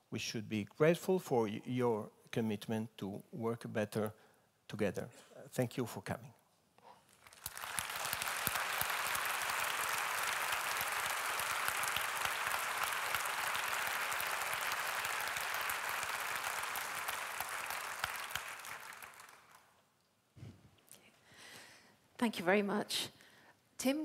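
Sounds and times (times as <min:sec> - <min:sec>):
audience applauding: 0:07.1 - 0:19.8.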